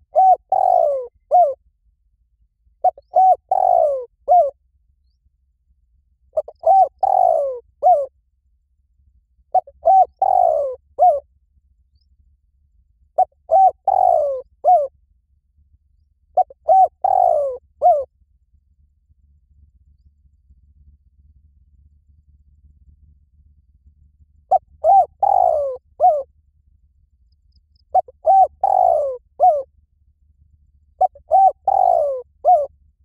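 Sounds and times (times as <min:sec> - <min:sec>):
dove cooing: 0:00.0 - 0:01.6, 0:02.8 - 0:04.6, 0:06.3 - 0:08.1, 0:09.5 - 0:11.2, 0:13.2 - 0:14.9, 0:16.4 - 0:18.1, 0:24.5 - 0:26.3, 0:27.9 - 0:29.7, 0:31.0 - 0:32.7.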